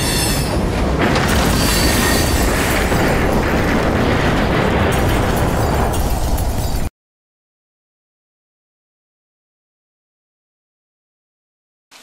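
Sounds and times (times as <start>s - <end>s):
high wheel squeal: 0.0s - 0.6s
train wheels rumbling on rails: 0.0s - 6.9s.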